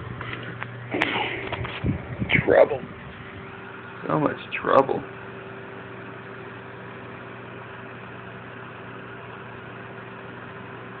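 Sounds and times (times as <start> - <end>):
background hum and hiss: 0.0 - 11.0.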